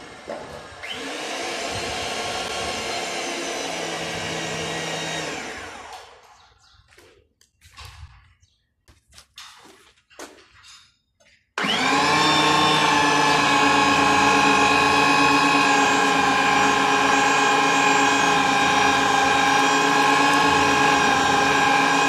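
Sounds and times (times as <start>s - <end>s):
electric motor running: 0.0s - 6.2s, 11.6s - 22.0s
knocks and clatters: 9.0s - 11.5s.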